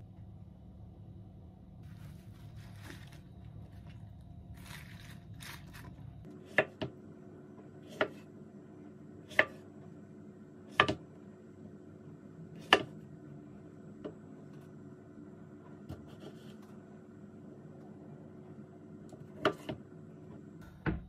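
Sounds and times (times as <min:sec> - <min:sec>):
plastic bag rustling: 0:01.8 - 0:06.3.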